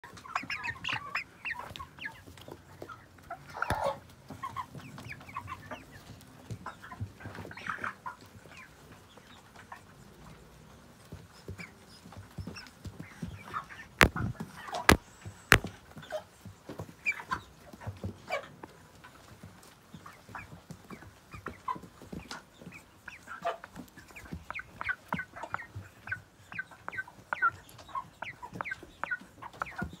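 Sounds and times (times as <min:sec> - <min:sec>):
chickens clucking and peeping: 0:00.0 - 0:30.0
sharp taps: 0:14.9 - 0:15.7.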